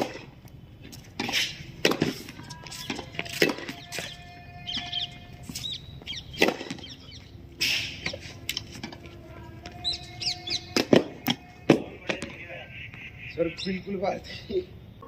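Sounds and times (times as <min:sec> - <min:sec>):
tennis ball struck by rackets: 0:01.2 - 0:07.1, 0:07.7 - 0:13.0
small birds chirping: 0:02.6 - 0:08.7, 0:09.3 - 0:11.3, 0:12.1 - 0:15.0.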